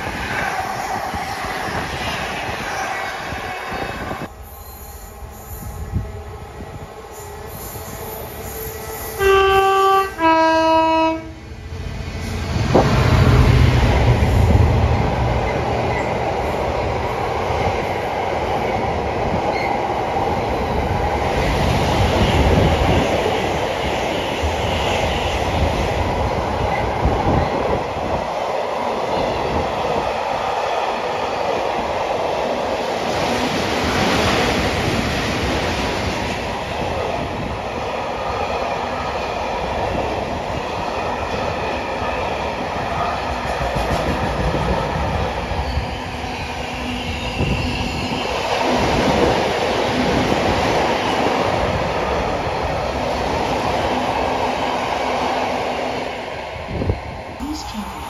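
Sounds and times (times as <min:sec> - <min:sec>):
train two-tone horn: 0:06.7 - 0:11.5.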